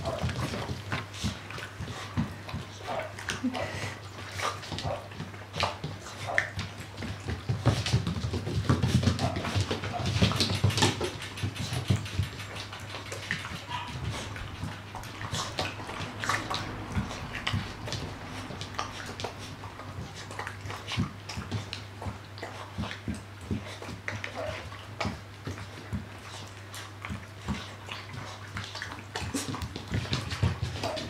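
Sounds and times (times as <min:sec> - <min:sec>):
puppies crunching kibble: 0:00.0 - 0:31.0
steady low hum: 0:09.2 - 0:26.4.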